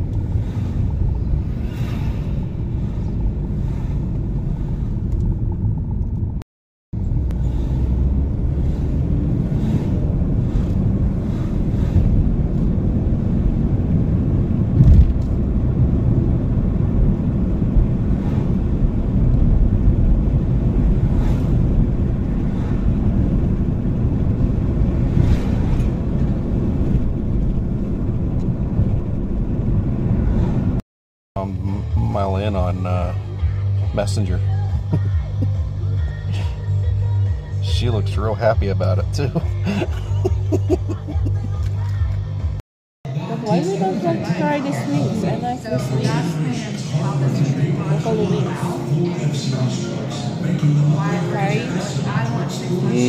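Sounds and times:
car road and engine rumble: 0.0 - 6.4, 7.0 - 30.8, 31.4 - 53.0
thump: 14.8 - 15.2.

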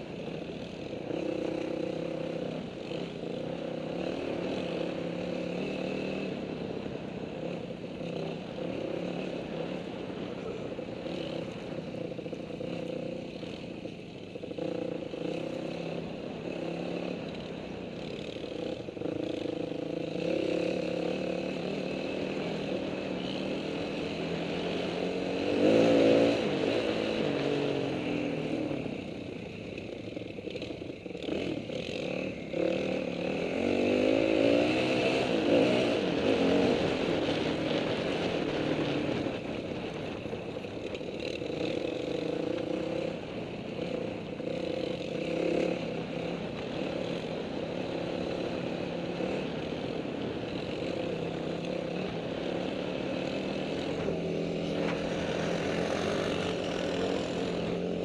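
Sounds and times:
dirt bike engine revving: 14.5 - 28.7, 31.2 - 40.1, 40.8 - 58.0.

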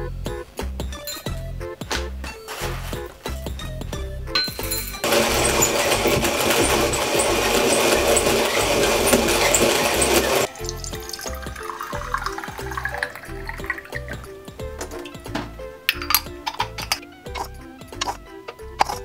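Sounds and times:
music with bass beat: 0.0 - 4.8.

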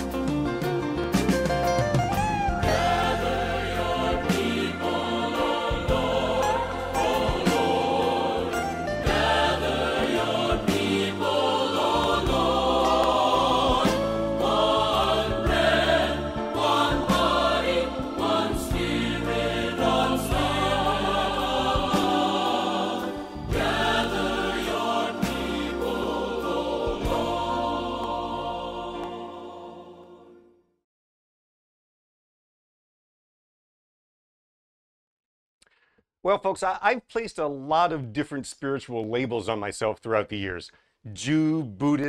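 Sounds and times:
instrumental accompaniment: 0.0 - 30.2
choir singing a hymn: 2.6 - 30.6.

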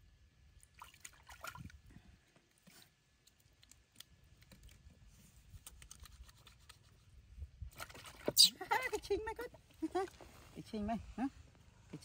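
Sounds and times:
water splashing and dripping in tub: 0.5 - 1.9.

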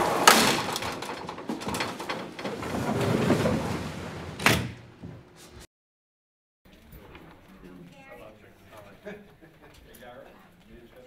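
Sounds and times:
metal gate rattling and clanking: 0.0 - 3.7.

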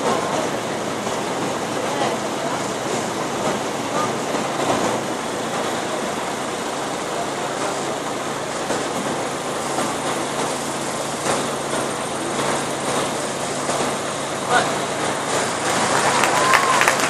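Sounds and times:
crowd murmur: 0.0 - 10.4.

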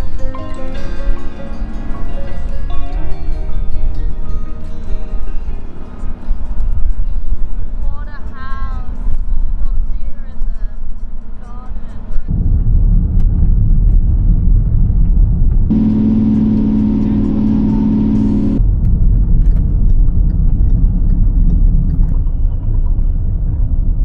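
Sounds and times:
high-pitched engine drone: 0.0 - 7.8, 15.7 - 18.6
engine and road rumble: 0.0 - 24.0.

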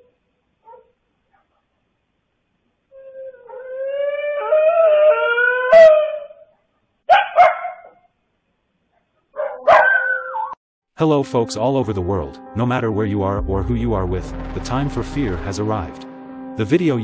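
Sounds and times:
wavering wailing cry: 2.9 - 6.4.

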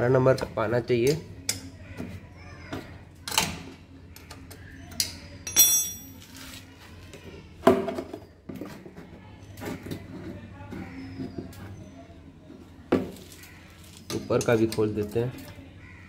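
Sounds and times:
metal spanner clinking on bolt: 5.0 - 6.2
short metallic ring: 5.5 - 6.2.

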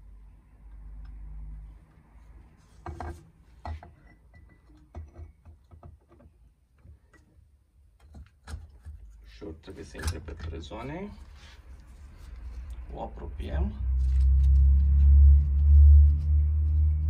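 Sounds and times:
metal parts knocking and clinking: 9.8 - 10.9.

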